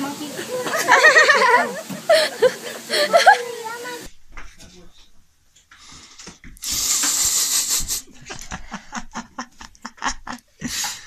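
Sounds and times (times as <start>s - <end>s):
person laughing: 0.6s - 3.6s, 7.5s - 11.0s.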